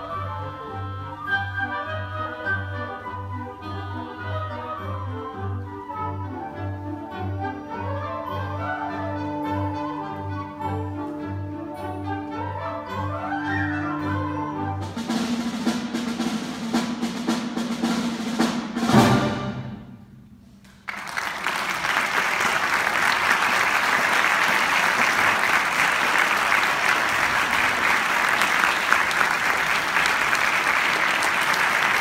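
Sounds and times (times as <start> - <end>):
wind band playing a march: 0.0 - 20.2
audience applauding: 20.6 - 32.0.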